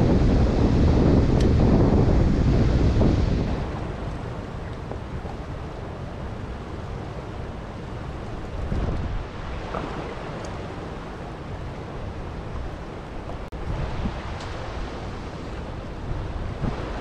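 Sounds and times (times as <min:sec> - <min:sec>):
wind buffeting microphone: 0:00.0 - 0:17.0
water lapping against a canoe: 0:00.8 - 0:17.0.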